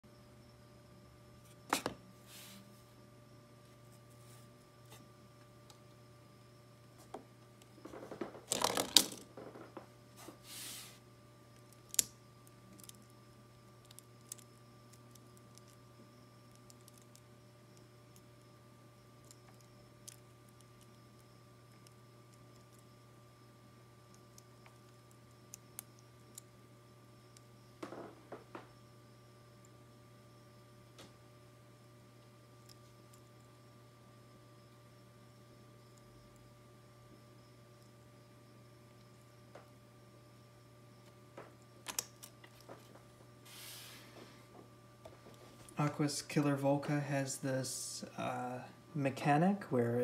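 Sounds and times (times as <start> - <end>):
faint steady hum: 0.0 - 50.0
plastic ball rolling and rattling: 7.9 - 9.7.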